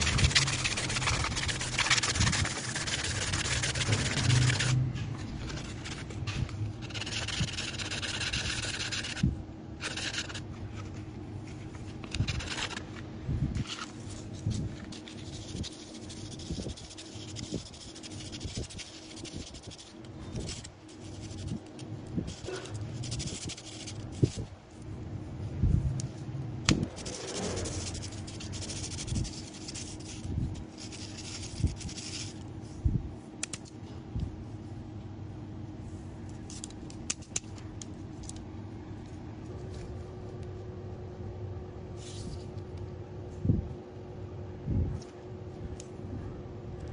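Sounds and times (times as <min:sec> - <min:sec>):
sandpaper rubbing on bamboo: 0:00.0 - 0:04.8, 0:06.8 - 0:09.2, 0:09.8 - 0:10.4, 0:14.9 - 0:21.6, 0:22.3 - 0:24.4, 0:26.8 - 0:32.4.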